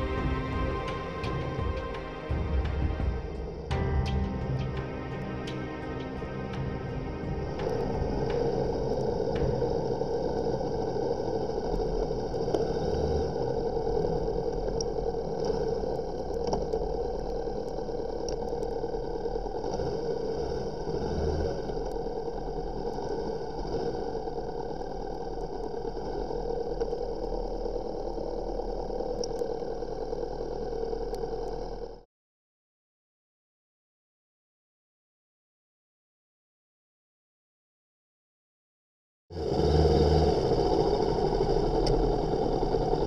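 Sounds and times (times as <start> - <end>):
faint ticks: 14.0 - 20.0, 28.4 - 31.8, 41.6 - 42.1.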